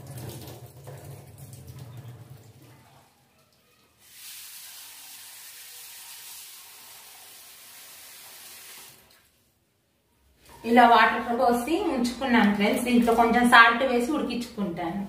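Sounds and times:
tap water running into bowl: 0.0s - 2.7s.

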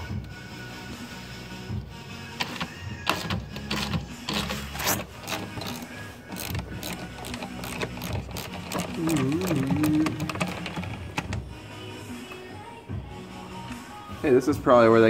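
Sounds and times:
hand ratchet clicking: 2.4s - 11.4s.

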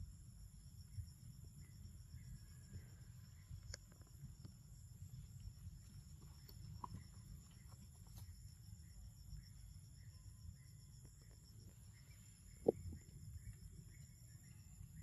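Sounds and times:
insects droning: 0.0s - 15.0s.

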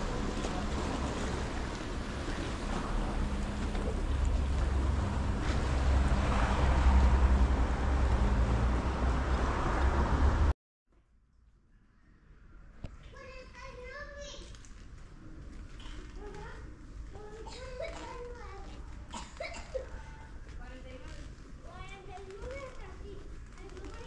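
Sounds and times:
low engine rumble: 0.0s - 10.5s.

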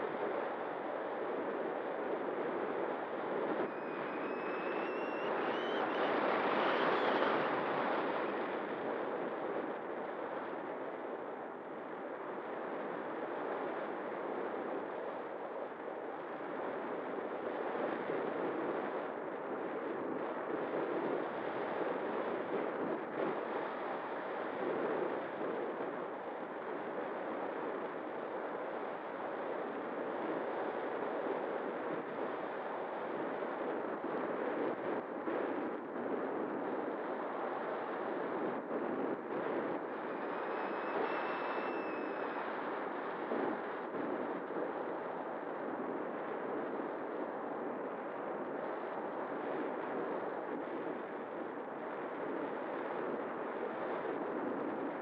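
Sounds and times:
faint steady tone: 0.0s - 17.9s, 35.3s - 46.9s.

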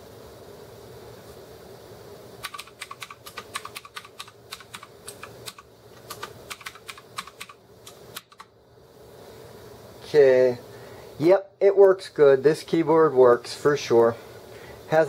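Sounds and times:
mechanical keyboard key clicks: 2.4s - 7.6s.

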